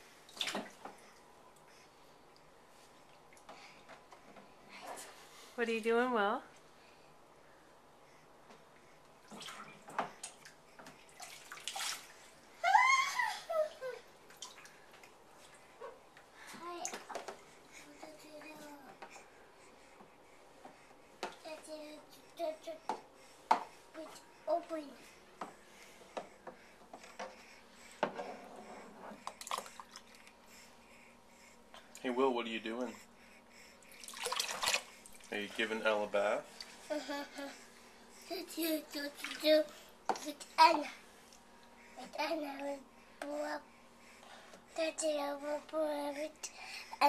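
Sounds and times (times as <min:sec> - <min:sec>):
water splashing into tub: 0:11.2 - 0:12.1, 0:34.0 - 0:35.3.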